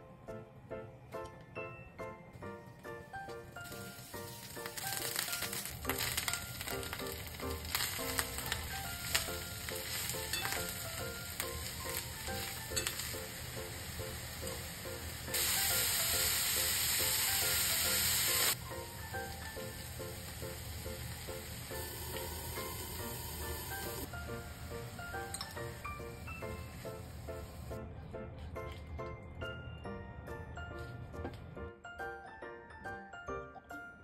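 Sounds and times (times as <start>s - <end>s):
loud steady sizzle: 3.3s - 27.8s
mushrooms sizzling in a frying pan: 3.6s - 27.7s.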